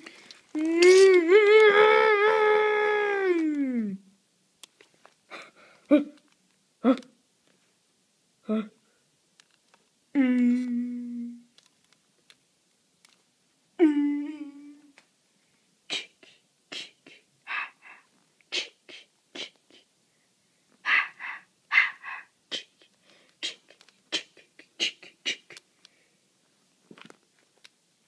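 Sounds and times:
breathy hissing mouth noises: 0:00.0 - 0:01.3, 0:15.9 - 0:19.9, 0:20.8 - 0:26.0.

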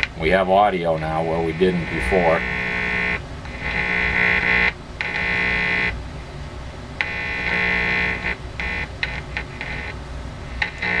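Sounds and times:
harsh buzz from radio loudspeaker: 0:00.0 - 0:06.0, 0:07.0 - 0:11.0.

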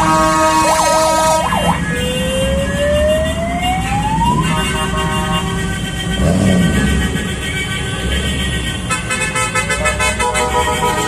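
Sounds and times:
vehicle horn tones: 0:00.0 - 0:01.4, 0:04.3 - 0:11.0
siren wailing: 0:00.0 - 0:04.6
traffic rumble: 0:00.0 - 0:11.0.

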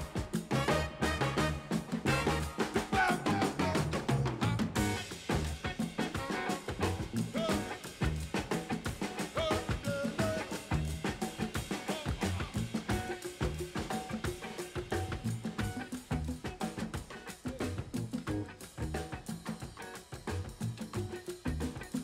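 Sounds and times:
jazz music: 0:00.0 - 0:07.7
busy drum kit: 0:00.0 - 0:22.0.

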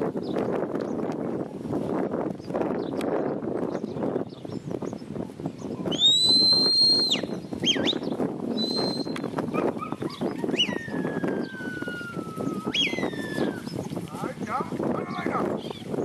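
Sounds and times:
handler whistling commands: 0:05.9 - 0:08.0, 0:08.6 - 0:09.2
cattle hooves trampling dry ground: 0:07.7 - 0:16.0.

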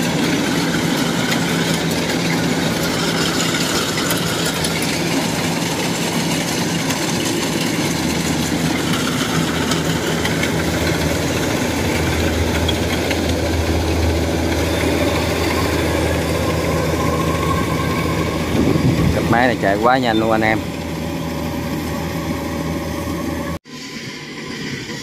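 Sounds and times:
combine harvester engine and machinery: 0:00.0 - 0:25.0.

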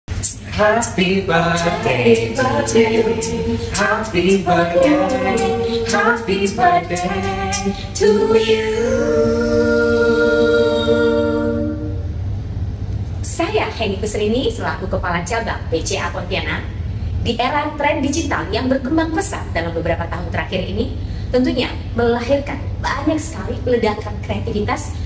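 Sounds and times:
group singing a cappella: 0:00.1 - 0:12.1
crisp clicking beat: 0:00.2 - 0:07.8.

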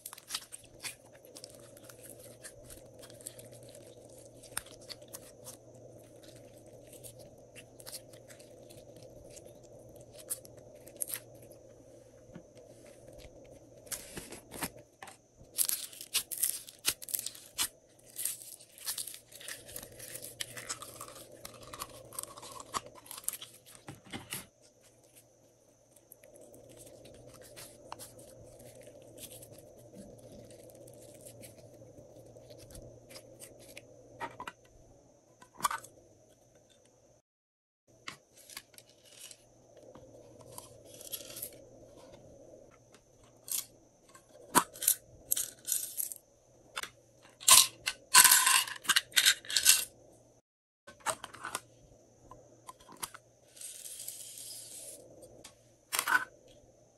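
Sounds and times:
faint room hum: 0:00.0 - 0:37.2.

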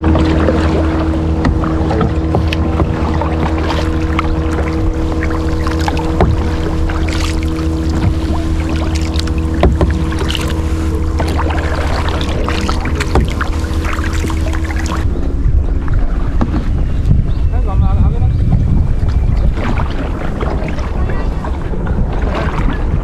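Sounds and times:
water splashes and drips: 0:00.0 - 0:15.0
paddle strokes in water: 0:00.0 - 0:17.3, 0:18.4 - 0:23.0
steady low hum: 0:00.0 - 0:23.0.

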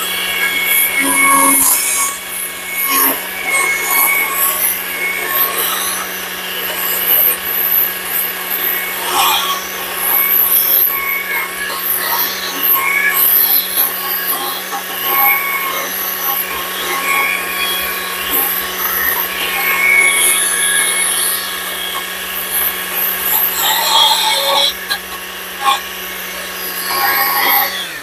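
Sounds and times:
chainsaw cutting wood: 0:00.0 - 0:28.0.

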